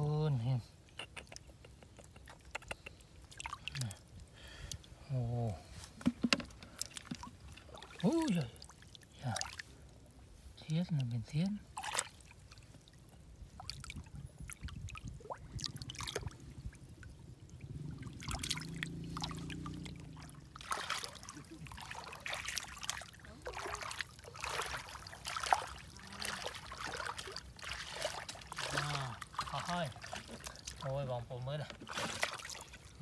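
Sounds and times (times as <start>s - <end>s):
water dripping: 0.9s - 5.0s, 10.8s - 31.0s
hands splashing in muddy water: 11.7s - 16.4s, 18.2s - 30.9s, 31.8s - 33.0s.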